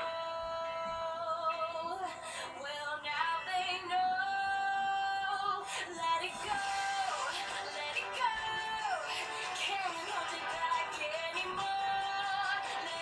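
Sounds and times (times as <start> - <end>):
woman singing: 0.0 - 13.0
backing music: 5.6 - 13.0.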